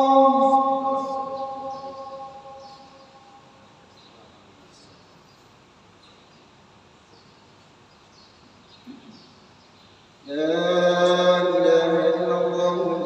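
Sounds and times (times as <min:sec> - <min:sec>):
man chanting on held note: 0:00.0 - 0:03.5.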